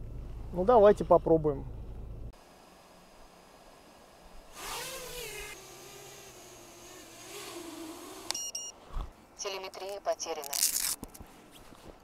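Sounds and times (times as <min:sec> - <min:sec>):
quadcopter propeller buzz: 0:04.5 - 0:08.4.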